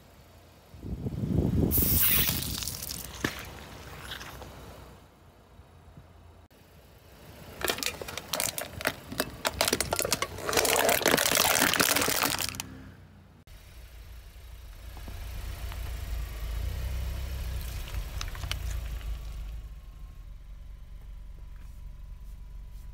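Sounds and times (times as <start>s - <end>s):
car rolling rumble: 0.0s - 22.9s
cans crushed under tyre: 2.0s - 3.6s, 7.5s - 12.7s, 17.6s - 19.1s.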